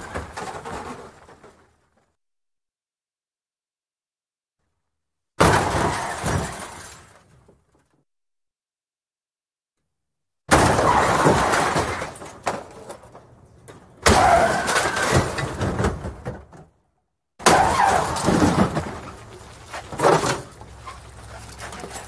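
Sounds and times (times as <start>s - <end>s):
scattered debris: 0.0s - 2.1s, 5.4s - 7.9s, 10.5s - 16.7s, 17.4s - 22.0s
car crash impact: 5.4s - 7.5s, 10.5s - 13.0s, 14.0s - 16.5s, 17.4s - 20.6s.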